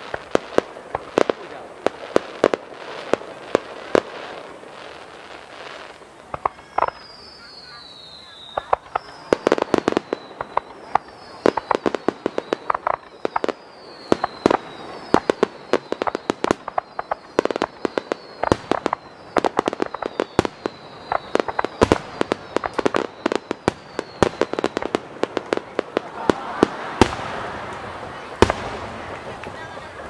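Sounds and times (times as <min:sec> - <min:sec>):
fireworks bangs and crackles: 0:00.0 - 0:30.0
falling high whistle: 0:06.4 - 0:24.7.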